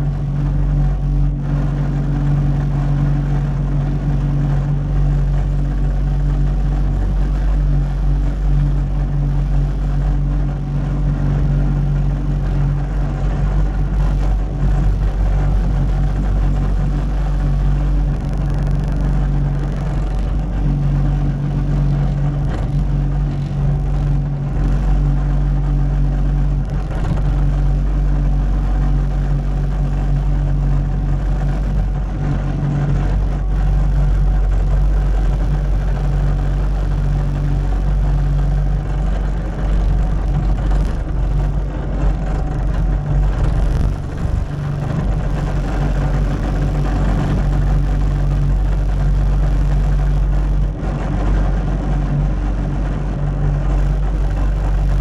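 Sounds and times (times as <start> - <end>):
diesel engine droning: 0.0 - 55.0.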